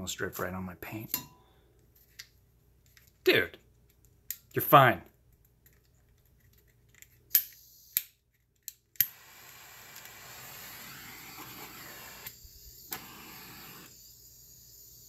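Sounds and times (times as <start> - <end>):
gas torch igniter clicks: 9.0 - 13.9
torch flame hissing: 9.0 - 15.0.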